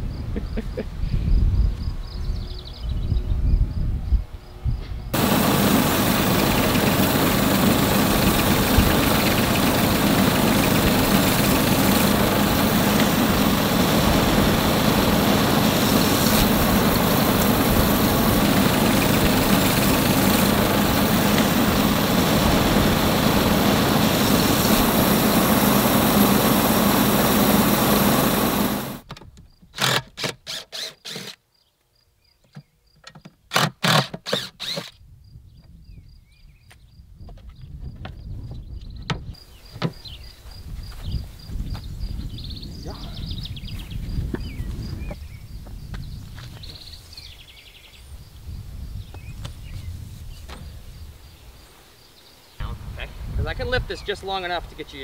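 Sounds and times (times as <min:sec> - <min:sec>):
sawmill engine drone: 0:04.2 - 0:29.0.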